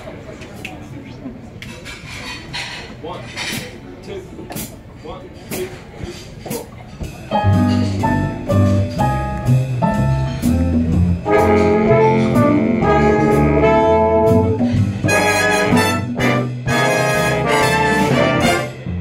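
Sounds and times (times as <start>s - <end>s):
rhythm section: 6.5s - 19.0s
trumpets and trombones: 10.4s - 19.0s
saxophone section: 11.2s - 19.0s.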